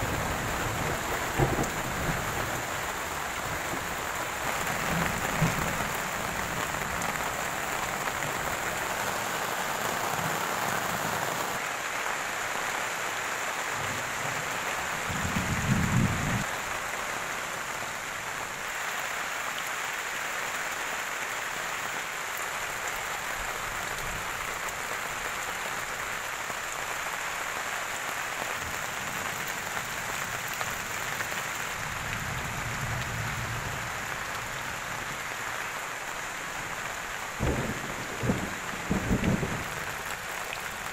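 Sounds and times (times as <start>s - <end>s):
rain falling on trees: 0.0s - 40.9s.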